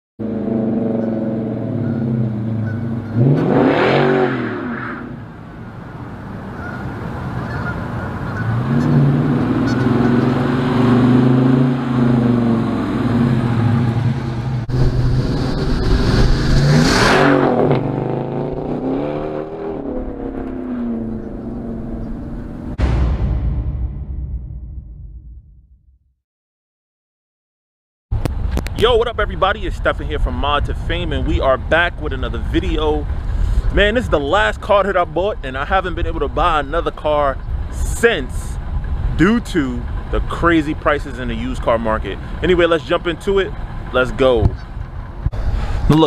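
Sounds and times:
car engine revving past: 0:00.2 - 0:05.3, 0:06.7 - 0:22.8.

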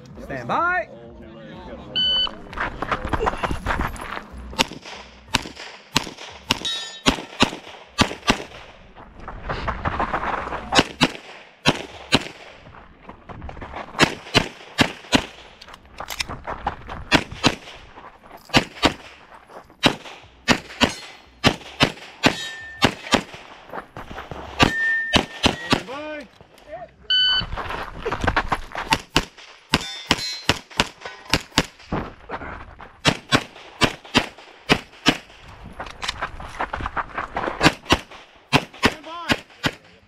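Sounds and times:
pistol shots: 0:04.6 - 0:08.8, 0:10.8 - 0:12.6, 0:14.0 - 0:15.6, 0:17.1 - 0:17.8, 0:18.5 - 0:19.2, 0:19.8 - 0:23.7, 0:24.6 - 0:26.0, 0:28.9 - 0:31.9, 0:33.0 - 0:35.4, 0:37.6 - 0:39.9.

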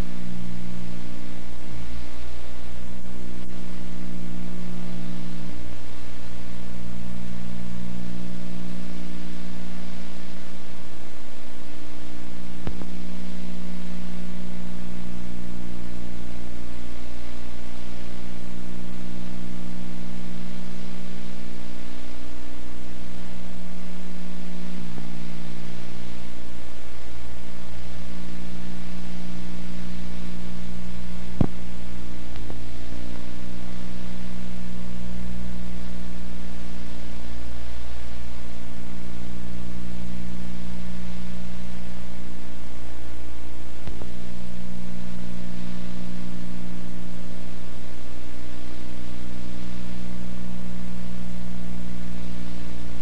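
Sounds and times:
constant hiss: 0:00.0 - 0:53.0
steady low hum: 0:00.0 - 0:53.0
faint click: 0:12.6 - 0:13.0, 0:32.3 - 0:33.2, 0:43.8 - 0:44.2.

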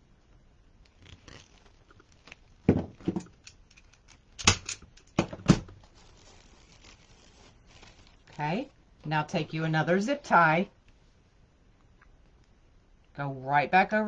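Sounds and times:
mesh rustling: 0:00.8 - 0:10.0.

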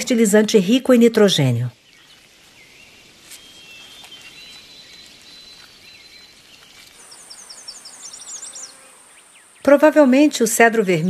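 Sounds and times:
faint bird chirps: 0:01.8 - 0:10.2.

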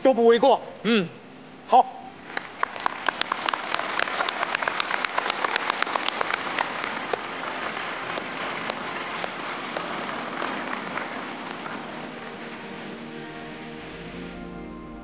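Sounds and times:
audience applauding: 0:02.2 - 0:13.6.

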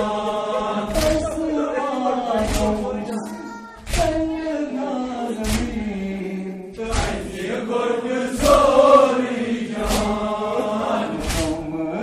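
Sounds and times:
group responding in chant: 0:00.0 - 0:04.7, 0:06.8 - 0:12.0
lead voice on a microphone: 0:00.0 - 0:07.3
men chanting an elegy: 0:00.0 - 0:12.0
chest-beating slaps: 0:00.8 - 0:01.5, 0:02.4 - 0:03.2, 0:05.4 - 0:06.0, 0:06.8 - 0:07.4, 0:08.3 - 0:08.9, 0:09.7 - 0:10.4, 0:11.1 - 0:11.8.

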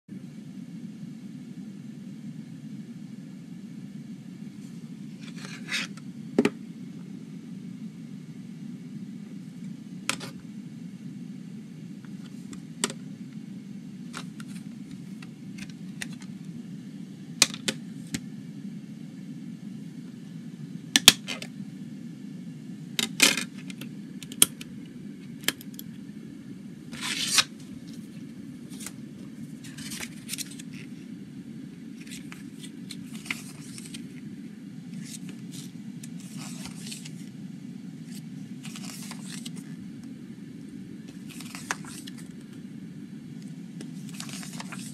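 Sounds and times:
steady low hum: 0:00.1 - 0:44.9
paper pages rustling: 0:05.2 - 0:06.0, 0:14.1 - 0:16.3, 0:27.0 - 0:31.0, 0:32.0 - 0:34.2, 0:34.9 - 0:37.3, 0:38.1 - 0:39.7, 0:41.1 - 0:42.5, 0:43.8 - 0:44.9.

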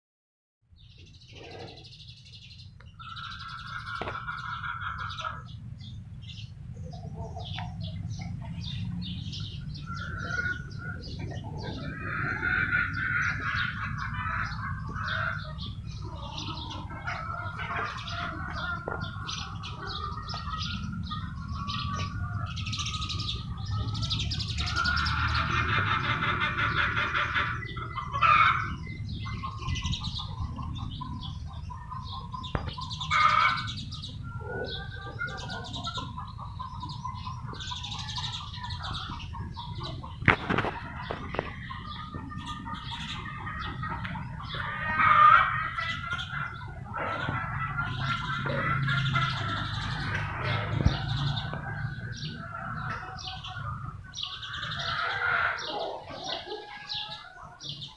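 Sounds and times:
small birds chirping: 0:00.7 - 0:57.9.

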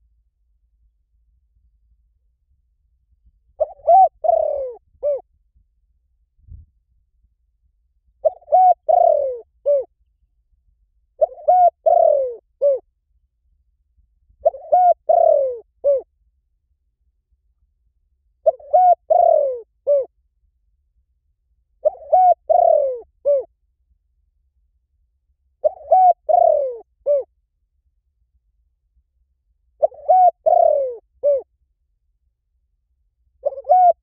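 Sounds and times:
dove cooing: 0:03.6 - 0:05.2, 0:08.2 - 0:09.9, 0:11.2 - 0:12.8, 0:14.4 - 0:16.1, 0:18.4 - 0:20.1, 0:21.8 - 0:23.5, 0:25.6 - 0:27.3, 0:29.8 - 0:31.5, 0:33.4 - 0:34.0.

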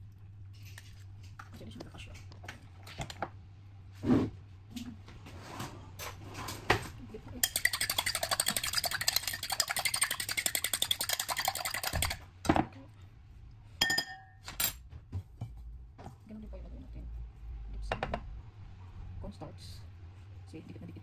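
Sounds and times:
fork clinking on bowl: 0:07.4 - 0:12.1, 0:13.8 - 0:14.3
fork beating egg in bowl: 0:07.4 - 0:12.2.

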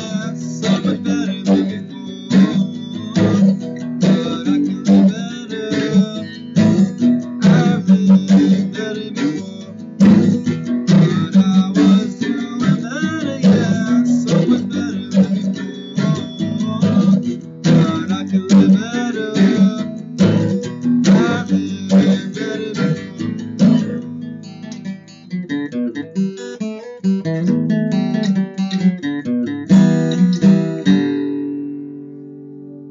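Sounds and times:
acoustic guitar strumming: 0:00.0 - 0:32.9.

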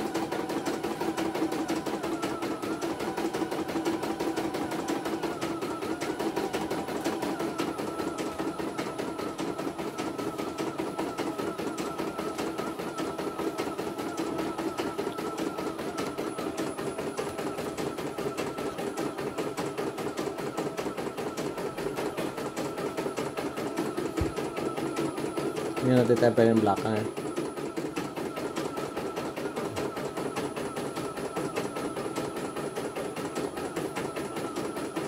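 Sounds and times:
motor hum: 0:20.8 - 0:28.7.

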